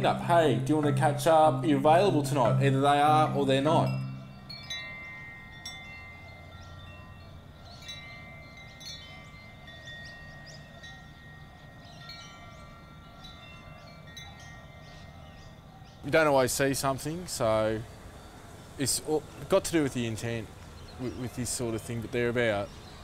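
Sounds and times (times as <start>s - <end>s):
wind chimes ringing: 0.0s - 23.0s.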